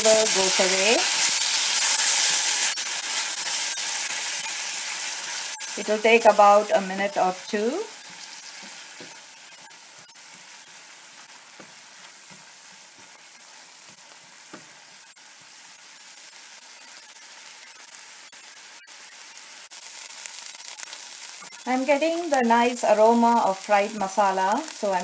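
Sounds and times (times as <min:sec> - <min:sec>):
onions sizzling in hot oil: 0:00.0 - 0:25.0
spatula stirring in pan: 0:00.4 - 0:21.8.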